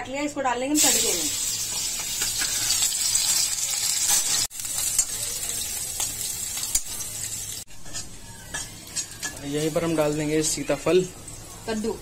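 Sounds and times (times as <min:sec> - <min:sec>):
food sizzling in oil: 0:00.7 - 0:12.0
metal spoon stirring: 0:06.6 - 0:10.2.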